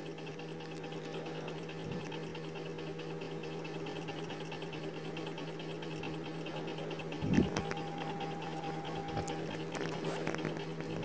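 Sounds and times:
low hum: 0:06.0 - 0:11.0.

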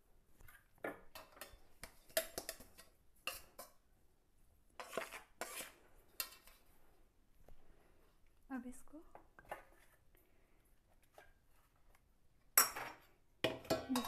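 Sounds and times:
steel utensils clinking on steel bowl: 0:12.6 - 0:14.0.

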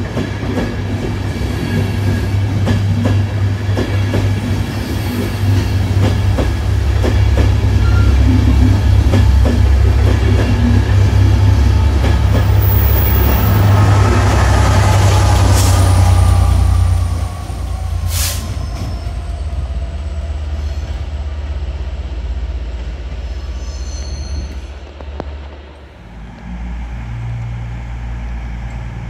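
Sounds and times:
train rumbling with falling whine: 0:00.0 - 0:29.0.

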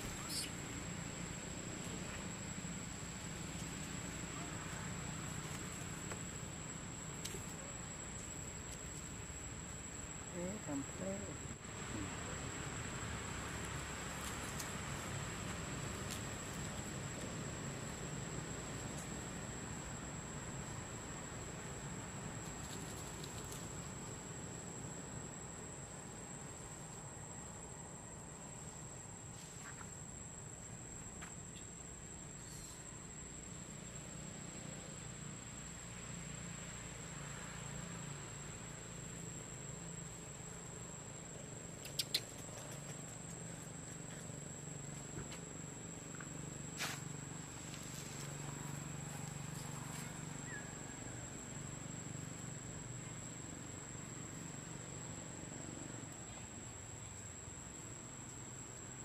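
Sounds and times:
low hiss: 0:00.0 - 0:42.7
insect drone: 0:00.0 - 0:59.0
faint short chirps: 0:41.8 - 0:42.4
faint clicks: 0:41.8 - 0:42.8.

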